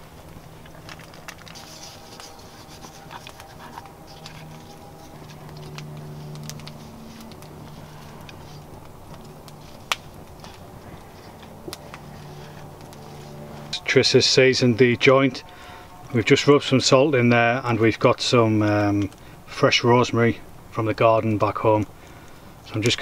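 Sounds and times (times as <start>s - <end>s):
rubbing and rustling of food: 0.0s - 13.9s
low steady hum: 0.0s - 23.0s.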